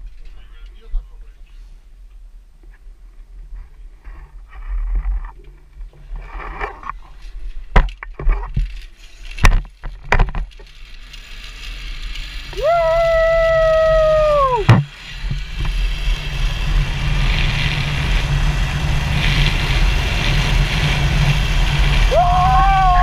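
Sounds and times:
zip-line hardware clicks: 7.8 - 22.1
pulley wheels whining on cable: 8.5 - 23.0.

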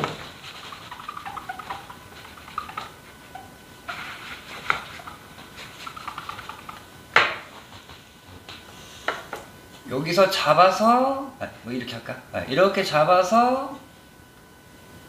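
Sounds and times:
eraser squeaking on whiteboard: 0.0 - 6.9.

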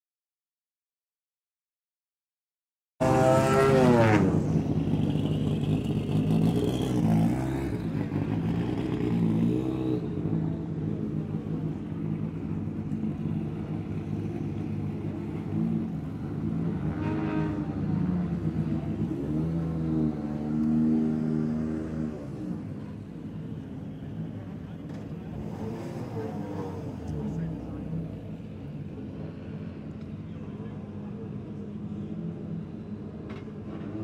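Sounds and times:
engine revving: 3.0 - 4.6, 16.5 - 22.6, 25.3 - 27.7
car engines idling: 4.3 - 7.0, 10.1 - 16.8, 22.3 - 32.1.

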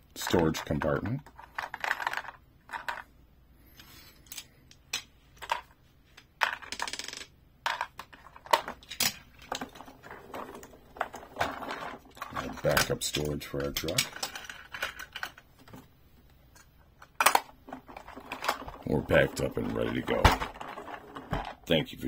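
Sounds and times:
plastic toy clicks and clatter: 7.7 - 15.4.

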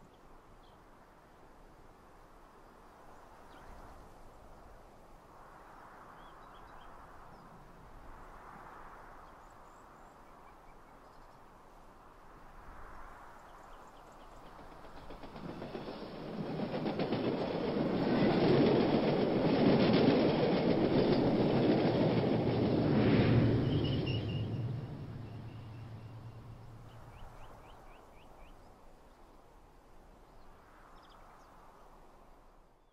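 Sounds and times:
faint wind-like hush: 0.0 - 32.9
high-speed train passing: 12.2 - 28.7
rail clatter: 14.2 - 27.6.

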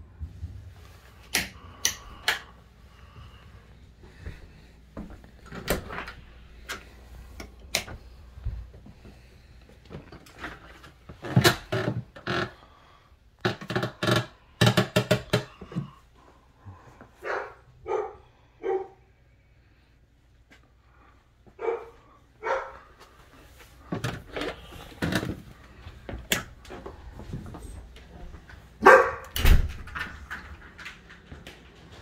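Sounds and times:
dog barking: 17.2 - 19.0, 21.6 - 22.9, 28.8 - 29.3.

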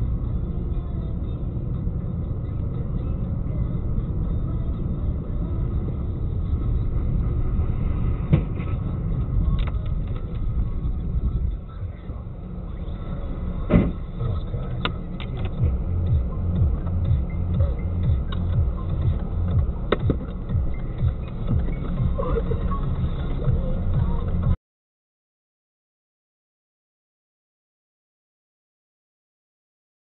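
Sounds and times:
car interior rumble: 0.0 - 24.6.

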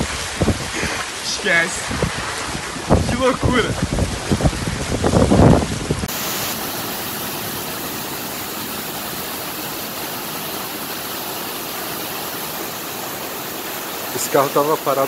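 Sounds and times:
wind buffeting microphone: 0.0 - 1.2, 1.8 - 10.4
floodwater rushing down street: 0.0 - 15.0.

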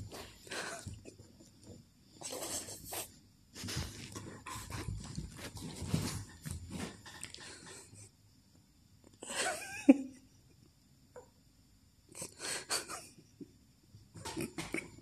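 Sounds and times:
paws scuffling on cushions: 3.6 - 7.4.

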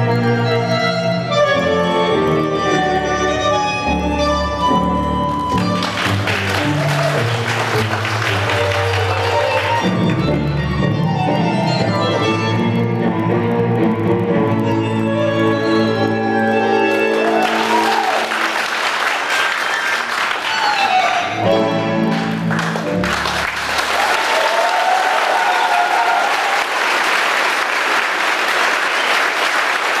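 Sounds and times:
tango music: 0.0 - 24.0
crowd applause: 5.3 - 10.7, 16.6 - 30.0.

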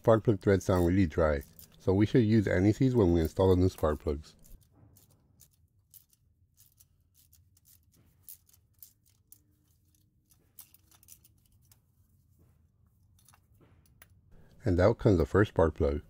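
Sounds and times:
ratchet clicking and scraping: 0.0 - 11.8.

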